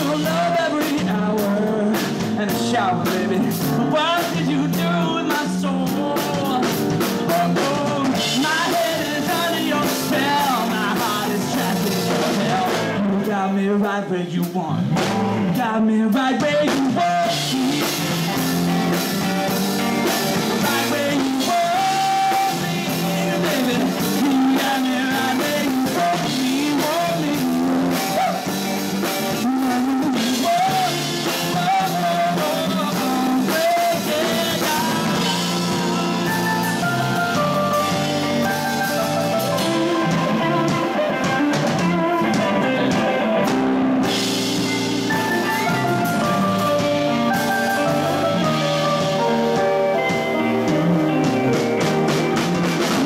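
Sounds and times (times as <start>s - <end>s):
rock band playing: 0.0s - 53.0s
wavering melody line: 35.0s - 52.9s.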